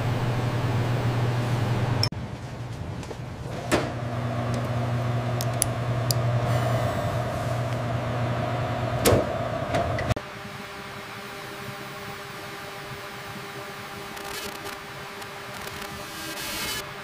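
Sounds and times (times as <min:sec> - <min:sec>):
instrument humming: 0:03.9 - 0:10.2
high whine: 0:03.9 - 0:17.0.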